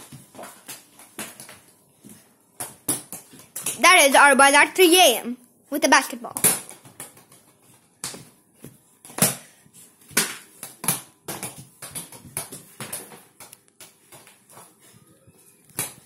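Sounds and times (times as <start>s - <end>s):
basketball bouncing on floor: 0.0s - 3.8s, 6.3s - 9.5s, 10.1s - 14.7s.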